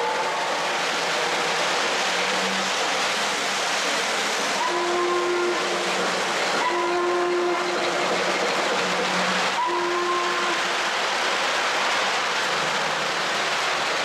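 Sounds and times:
steam hissing: 0.0s - 14.0s
model train whistle blasts: 4.6s - 5.9s, 6.6s - 7.9s, 9.5s - 10.8s.

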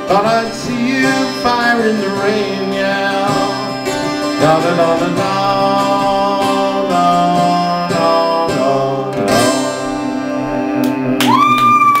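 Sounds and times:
high sliding tone: 0.0s - 8.3s
acoustic guitar strumming: 0.0s - 11.9s.

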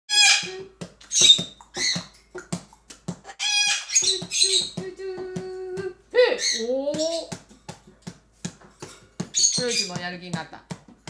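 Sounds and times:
parrots chirping and whistling: 0.1s - 4.8s, 6.3s - 7.4s, 9.3s - 10.0s.

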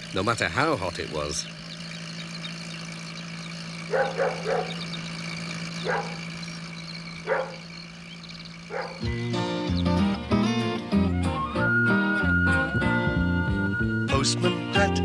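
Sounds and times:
van engine hum: 0.0s - 15.0s
dog barking: 3.9s - 4.8s, 5.8s - 6.2s, 7.2s - 7.7s, 8.7s - 9.0s
music: 9.0s - 15.0s.

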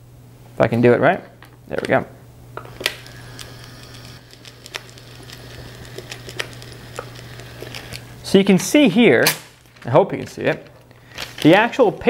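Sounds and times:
printer motor whir: 2.6s - 8.0s.

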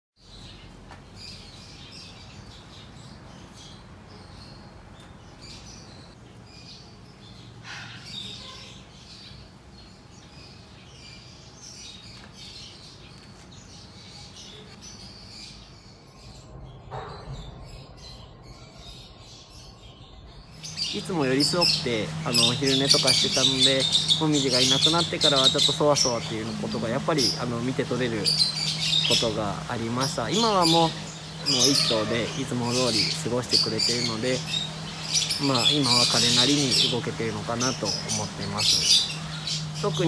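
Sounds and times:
small birds chirping: 0.2s - 40.0s
low steady hum: 17.8s - 40.0s.

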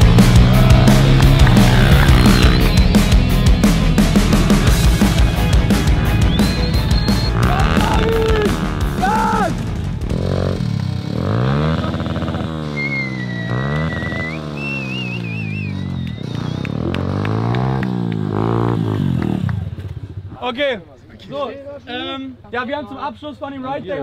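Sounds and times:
small motorbike engine revving: 0.0s - 3.2s, 10.1s - 19.9s
high wavering whistle: 12.8s - 16.6s.

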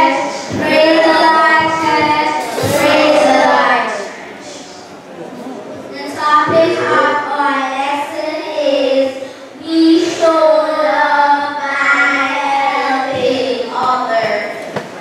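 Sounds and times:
children singing: 0.0s - 4.7s, 6.3s - 7.4s.

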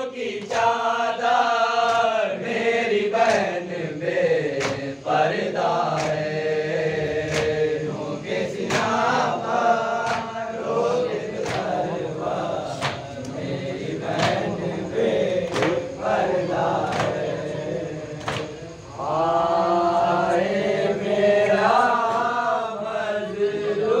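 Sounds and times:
men chanting into a microphone: 0.0s - 24.0s
chest-beating slaps: 4.5s - 4.9s, 5.9s - 6.3s, 7.3s - 7.7s, 8.6s - 9.1s, 10.0s - 10.4s, 11.3s - 12.0s, 12.7s - 13.4s, 14.1s - 14.7s, 15.4s - 15.9s, 18.2s - 18.7s.

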